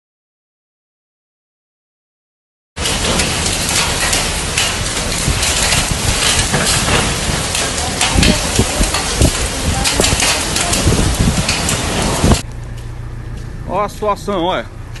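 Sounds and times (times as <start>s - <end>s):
hailstones hitting hard ground: 2.8s - 12.4s
heavy rain hissing: 2.8s - 12.4s.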